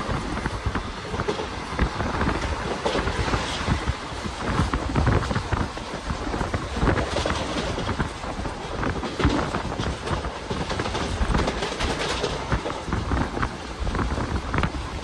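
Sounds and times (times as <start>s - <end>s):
train rushing at speed: 0.0s - 15.0s
train wheels clattering on track: 0.0s - 15.0s.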